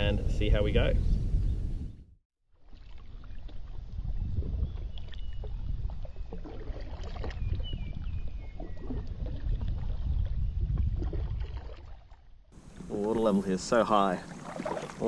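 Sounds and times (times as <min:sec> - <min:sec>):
paddle splashing in water: 0:02.5 - 0:15.0
water lapping against hull: 0:02.5 - 0:15.0.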